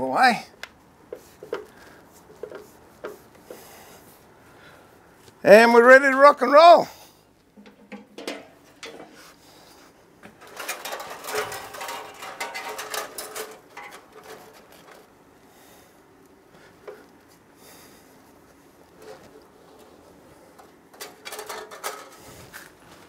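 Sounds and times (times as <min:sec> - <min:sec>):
metal clicks and rattles: 0:07.6 - 0:09.2, 0:10.3 - 0:15.1, 0:20.5 - 0:22.2.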